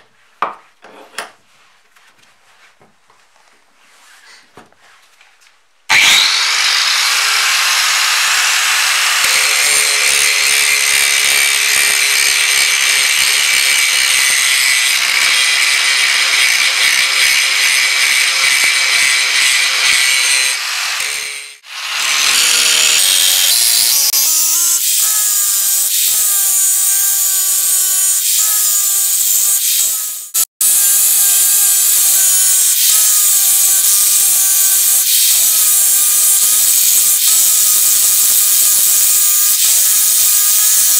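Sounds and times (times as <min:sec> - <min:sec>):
angle grinder grinding metal: 0:05.9 - 0:40.9.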